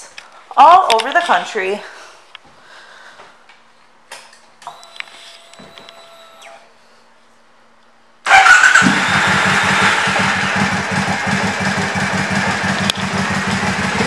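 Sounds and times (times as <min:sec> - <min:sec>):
motorcycle engine starting and idling: 0:08.2 - 0:14.0.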